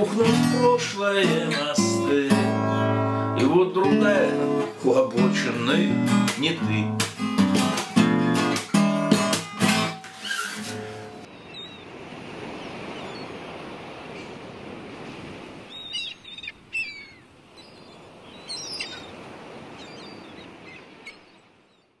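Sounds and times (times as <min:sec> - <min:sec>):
sea surf washing: 0:00.0 - 0:21.7
short bird calls: 0:15.7 - 0:21.9.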